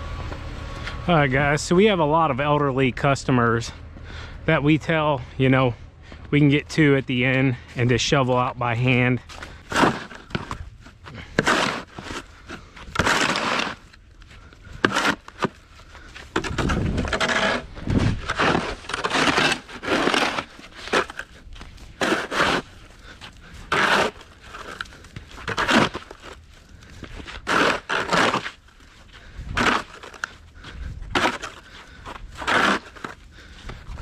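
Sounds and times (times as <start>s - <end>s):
plastic shovel scraping concrete: 7.2s - 14.0s, 14.6s - 34.0s.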